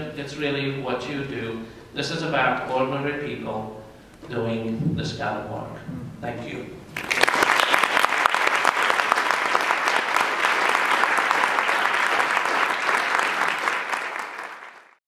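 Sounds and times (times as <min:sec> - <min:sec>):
audience applauding: 0:06.9 - 0:15.0.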